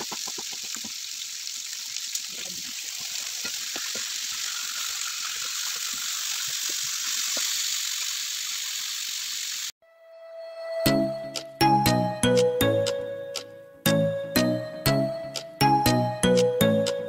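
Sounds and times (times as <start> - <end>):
chicken sizzling in hot oil: 0.0 - 9.8.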